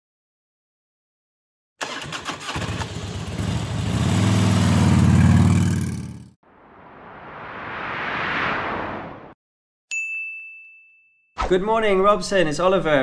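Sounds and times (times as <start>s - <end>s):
motorcycle engine running: 2.4s - 6.4s
rising whoosh: 6.4s - 9.4s.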